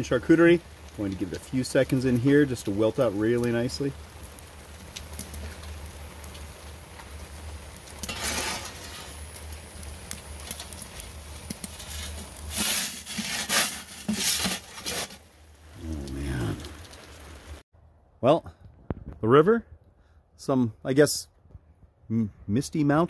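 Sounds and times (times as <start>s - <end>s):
metal peel clattering: 8.0s - 9.1s
metal peel scraping stone: 8.0s - 9.4s, 11.5s - 15.3s.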